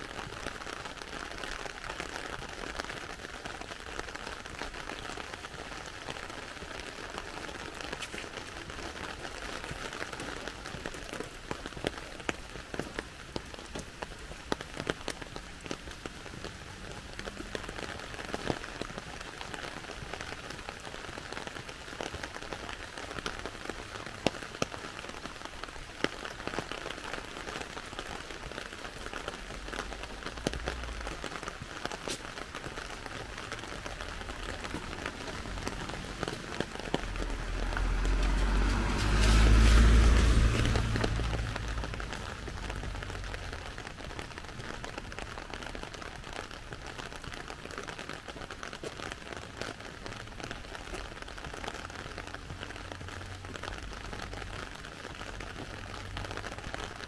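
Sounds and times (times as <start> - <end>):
rain on wet street: 0.0 - 57.0.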